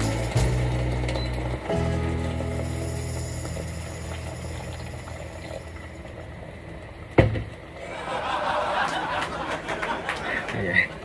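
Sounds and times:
water boiling in a pot: 0.0s - 7.8s
loud knock: 7.2s - 7.5s.

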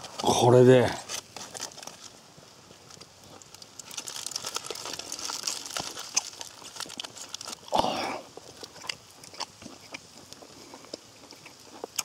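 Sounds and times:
person chewing food: 2.9s - 12.0s.

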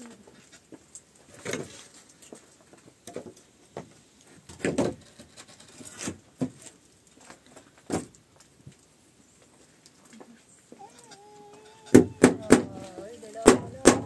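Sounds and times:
wooden planks knocking and thudding: 4.5s - 5.4s, 7.8s - 8.1s, 11.1s - 14.0s.

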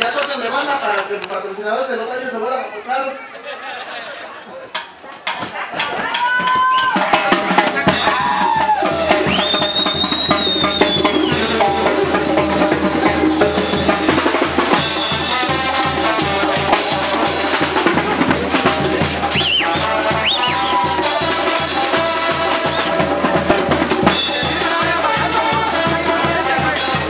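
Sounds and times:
drum kit dance beat: 4.8s - 27.0s
held wind instrument notes: 7.0s - 27.0s.

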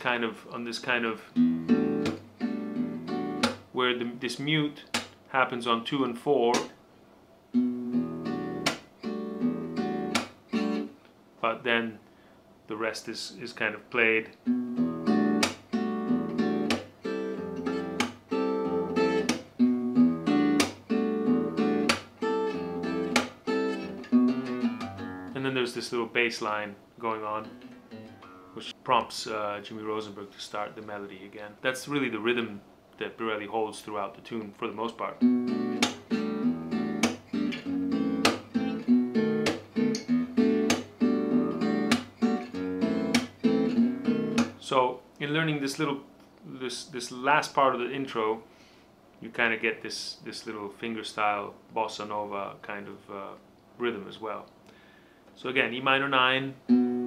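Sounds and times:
acoustic jazz guitar: 0.0s - 4.9s, 7.5s - 11.0s, 14.3s - 26.0s, 27.3s - 28.7s, 35.0s - 44.6s, 56.5s - 57.0s
muted percussive string chop: 38.2s - 38.5s, 40.7s - 40.9s.

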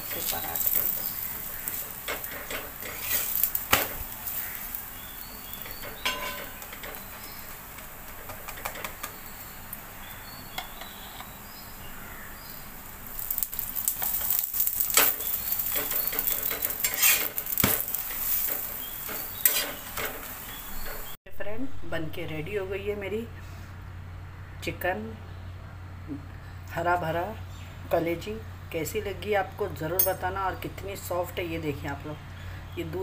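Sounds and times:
flatbread sizzling on hot pan: 0.0s - 21.2s
metal spatula scraping and tapping: 0.6s - 4.6s, 5.6s - 9.2s, 14.0s - 20.3s.

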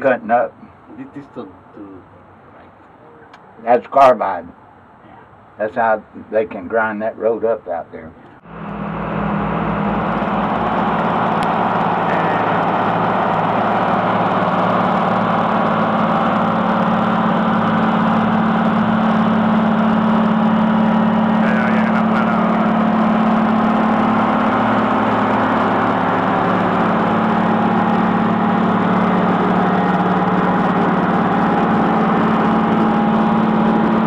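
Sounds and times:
heavy diesel engines humming: 8.3s - 34.0s.

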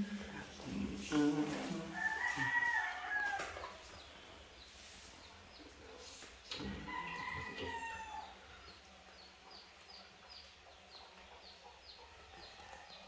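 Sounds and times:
rooster crowing: 1.7s - 3.8s, 6.6s - 8.4s.

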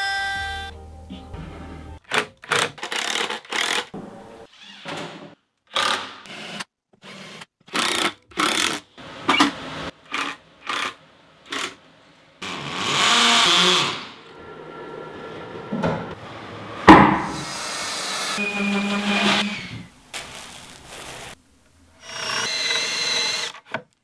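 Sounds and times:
cordless drill driving screws: 22.0s - 23.6s.

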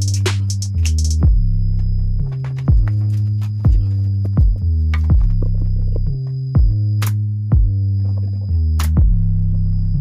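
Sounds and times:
electronic music: 0.0s - 10.0s.

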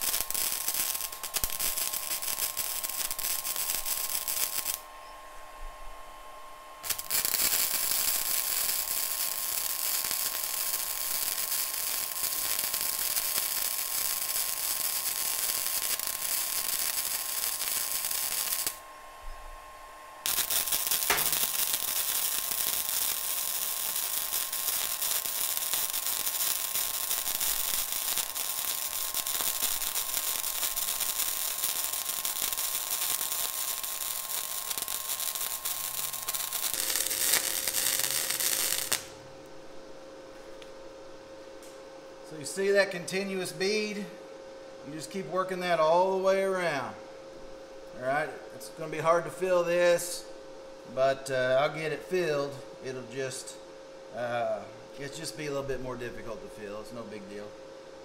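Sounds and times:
welder arc crackling: 0.0s - 4.9s, 6.8s - 18.9s, 20.2s - 39.3s.

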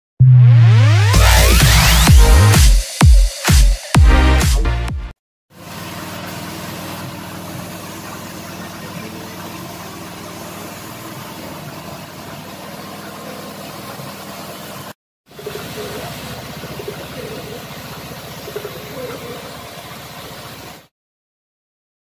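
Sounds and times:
paint spray gun hissing: 5.6s - 12.0s.

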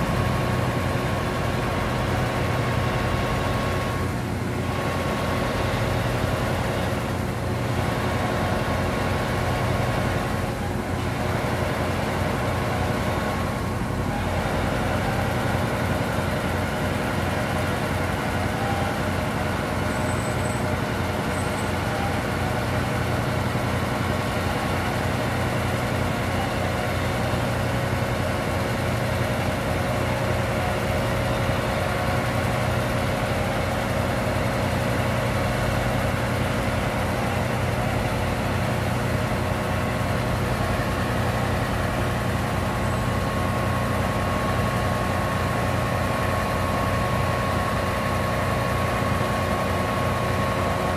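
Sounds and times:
diesel engine rumble: 0.0s - 50.9s.

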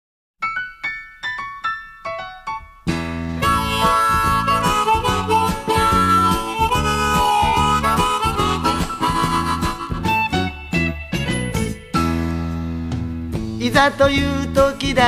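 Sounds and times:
harmonica melody: 2.9s - 12.2s
backing band with bass: 2.9s - 15.0s.

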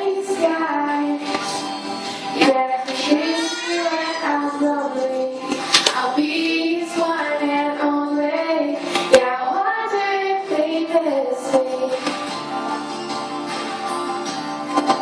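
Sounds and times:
girl singing into microphone: 0.0s - 1.6s, 2.3s - 12.2s.

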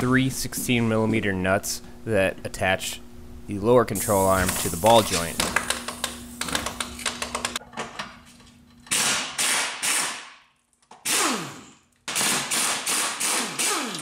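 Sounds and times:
impact wrench hammering: 8.8s - 14.0s.

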